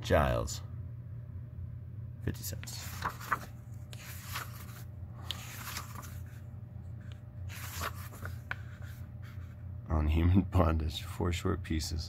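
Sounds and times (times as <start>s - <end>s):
steady low hum: 0.0s - 12.0s
book pages turning: 2.4s - 9.6s.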